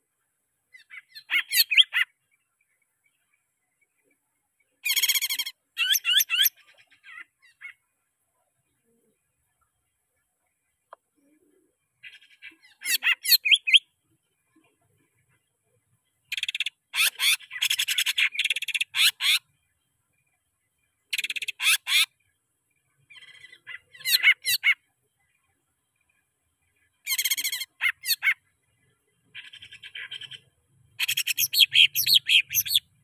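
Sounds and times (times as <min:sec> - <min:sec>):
bird chattering and warbling: 0:00.7 - 0:02.2, 0:04.8 - 0:07.9, 0:11.2 - 0:19.9, 0:21.0 - 0:22.4, 0:23.0 - 0:26.1, 0:26.7 - 0:33.0.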